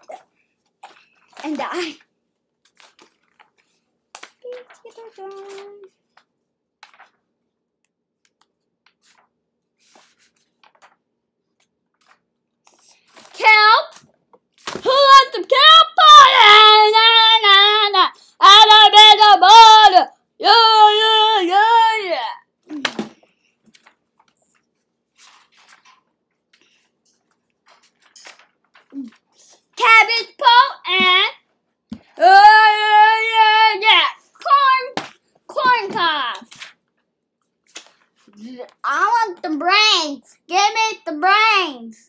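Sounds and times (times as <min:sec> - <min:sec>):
paper sheets rustling: 0:00.1 - 0:02.0, 0:02.6 - 0:07.4, 0:08.3 - 0:15.4, 0:22.8 - 0:31.1, 0:33.8 - 0:39.1.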